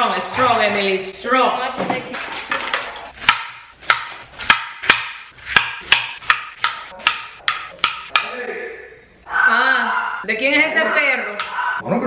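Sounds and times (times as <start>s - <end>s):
knife chopping on cutting board: 3.2s - 8.4s.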